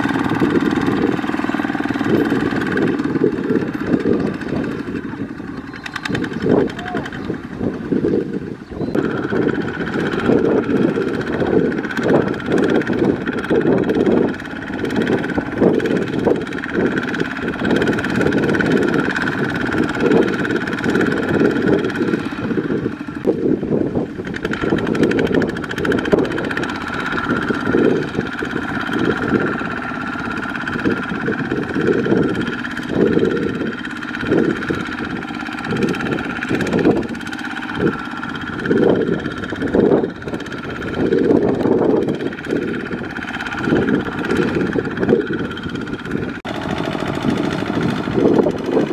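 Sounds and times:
diesel tractor engine chugging: 0.0s - 48.9s.

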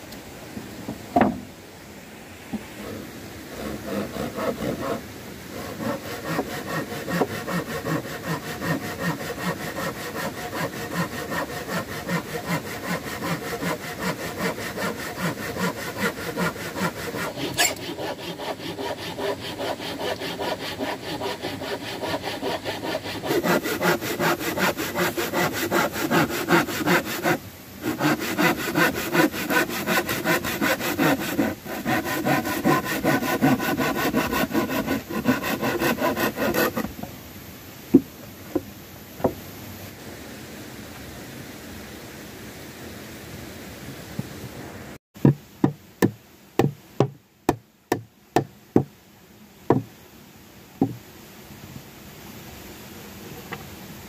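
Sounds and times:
hand saw cutting wood: 2.8s - 37.0s.

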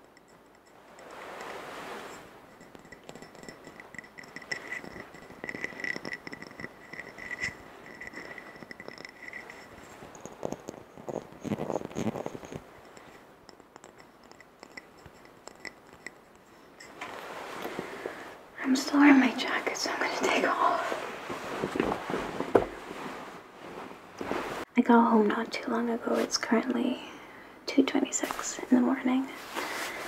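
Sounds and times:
fingernails tapping on glass jar: 0.0s - 17.0s.

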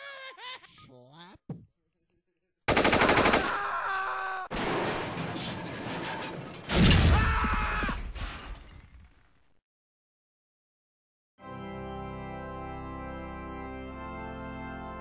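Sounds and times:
crashes: 4.5s - 7.3s.

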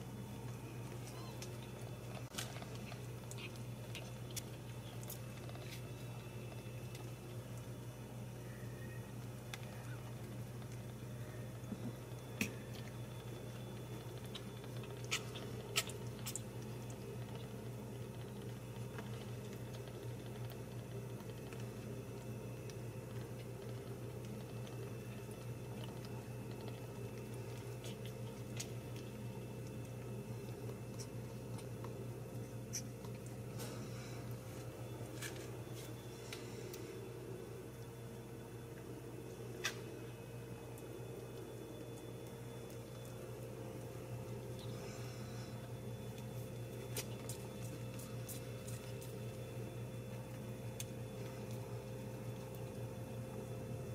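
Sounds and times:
low steady hum: 0.0s - 53.9s
kittens suckling: 0.9s - 6.6s, 11.6s - 22.2s, 23.1s - 34.8s.

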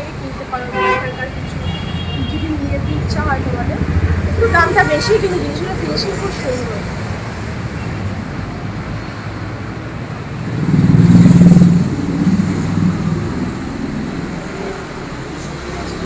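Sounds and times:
traffic engine rumble: 0.0s - 16.0s
vehicle engine passing loud: 1.4s - 16.0s.

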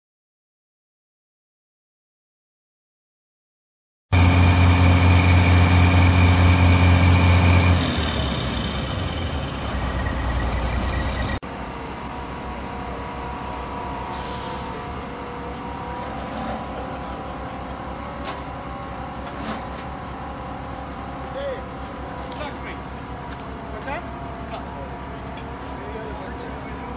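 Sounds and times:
diesel truck engines droning: 4.2s - 26.9s
brief hiss: 14.1s - 14.7s.

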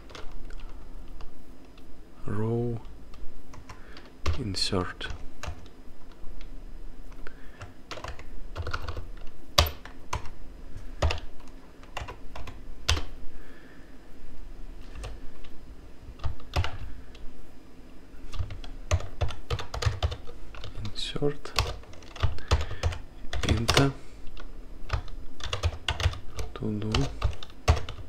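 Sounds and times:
typing on computer keyboard: 0.0s - 0.8s, 3.5s - 4.4s, 5.0s - 5.7s, 7.6s - 10.4s, 11.0s - 13.1s, 16.2s - 16.9s, 18.3s - 28.0s.

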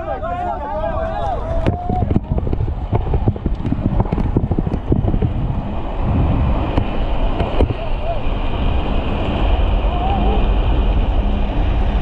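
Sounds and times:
wheels rolling on asphalt: 0.0s - 12.0s
wind buffeting microphone: 0.0s - 12.0s
trikes knocking and clattering: 1.6s - 5.4s.

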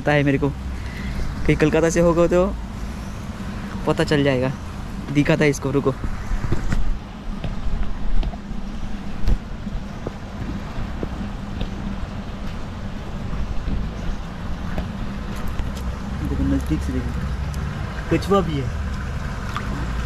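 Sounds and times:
wind rumbling on microphone: 4.6s - 18.1s.

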